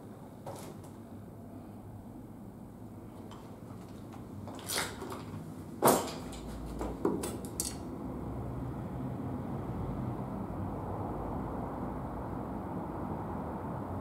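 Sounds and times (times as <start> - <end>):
knocks and clatters of hard objects: 4.5 - 7.9.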